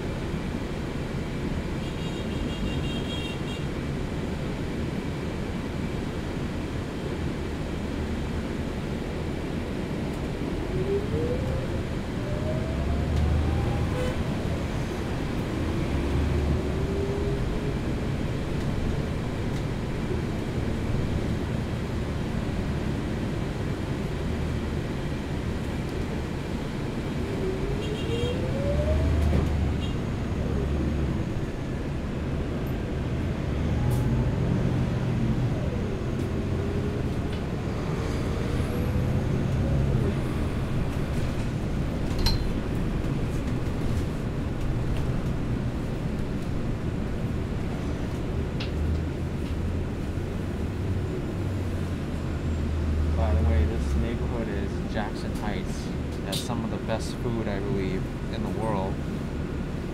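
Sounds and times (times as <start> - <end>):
bus engine and road rumble: 0.0 - 59.9
rising engine whine: 10.3 - 18.2, 26.8 - 45.8.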